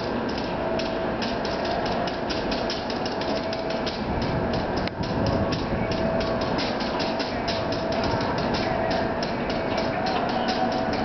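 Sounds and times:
electric train hum: 0.0 - 11.0
train wheels clicking: 0.0 - 11.0.

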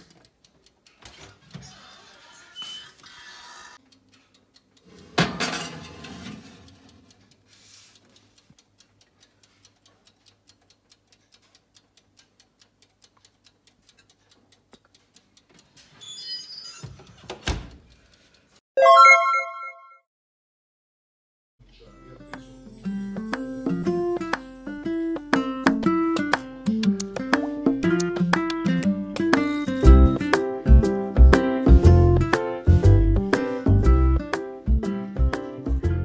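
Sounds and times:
mechanical timer ticking: 0.0 - 5.2, 5.9 - 16.8, 22.8 - 31.8.

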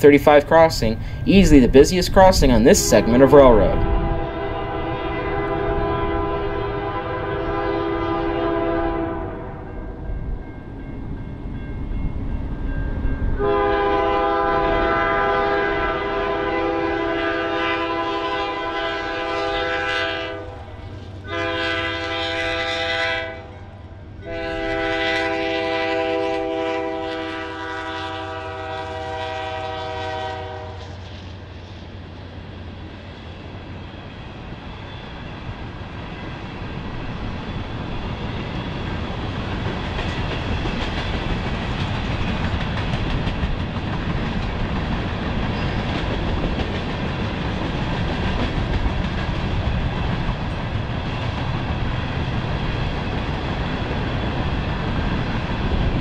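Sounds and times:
train air horn: 2.7 - 9.6, 13.4 - 20.7, 21.3 - 23.6, 24.2 - 31.1.

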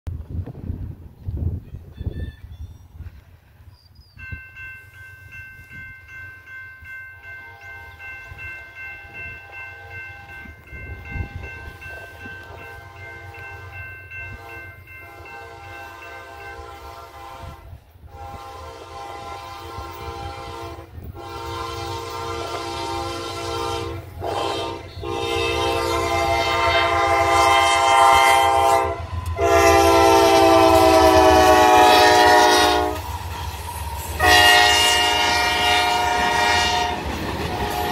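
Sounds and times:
locomotive air horn blasts: 12.4 - 13.7, 14.3 - 33.1, 34.1 - 37.9.

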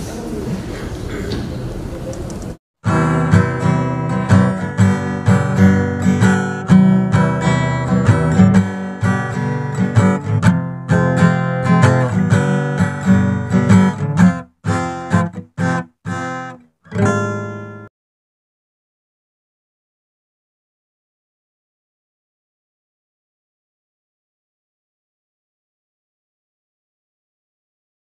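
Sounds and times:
strummed acoustic guitar: 2.8 - 17.9.

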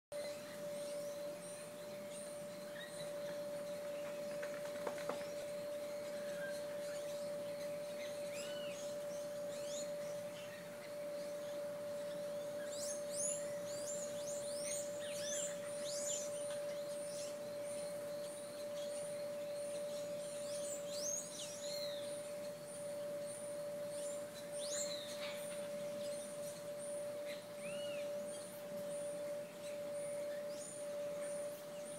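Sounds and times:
birds whistling and chirping: 0.1 - 31.9
steady hum: 0.1 - 31.9.

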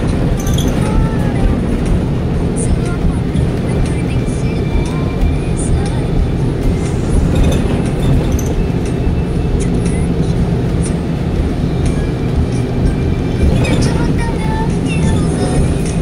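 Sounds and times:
bus engine drone: 0.0 - 16.0
road rumble: 0.0 - 16.0
short squeaks: 0.3 - 1.2.

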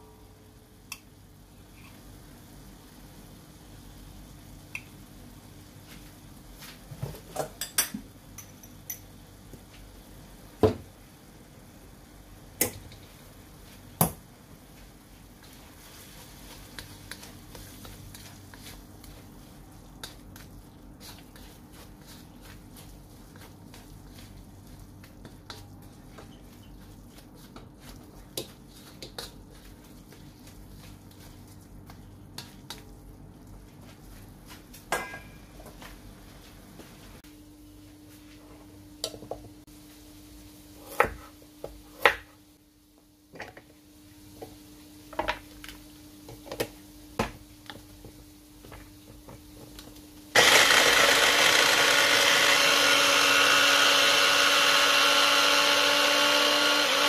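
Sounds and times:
spatula stirring and scraping: 15.4 - 34.6.

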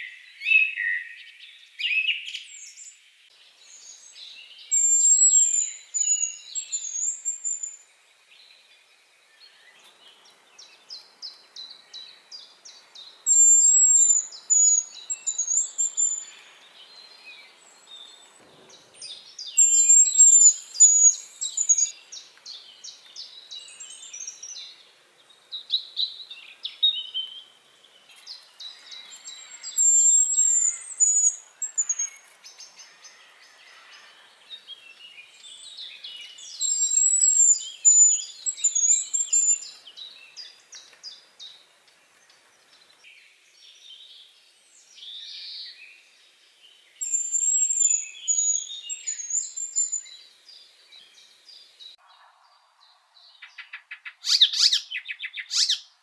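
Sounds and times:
nestling shrill repeated calls: 4.8 - 7.8, 13.3 - 16.4, 19.6 - 22.0, 28.8 - 32.2, 36.5 - 39.7, 53.5 - 55.9.

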